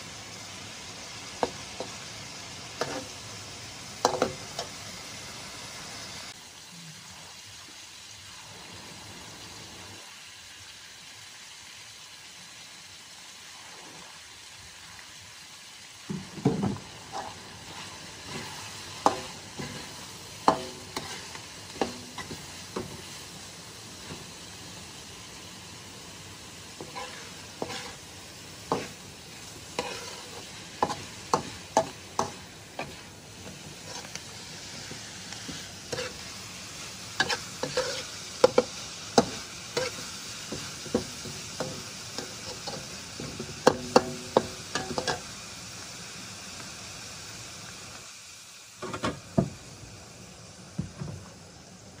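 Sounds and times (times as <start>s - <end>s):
food sizzling: 0.0s - 52.0s
spatula scraping a metal wok: 2.8s - 3.2s, 16.8s - 23.2s, 26.7s - 45.3s.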